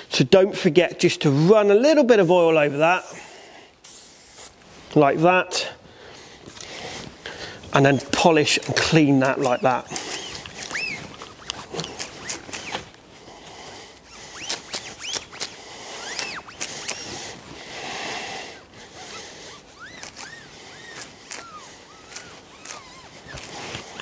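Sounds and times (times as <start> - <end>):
cloth rubbing steel with squeaks: 7.0 - 13.0, 14.0 - 17.6, 18.6 - 24.0.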